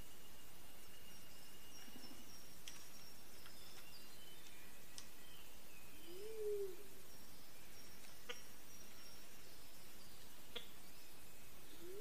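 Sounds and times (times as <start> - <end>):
low hooting bird call: 6.0 - 7.0, 11.7 - 12.0.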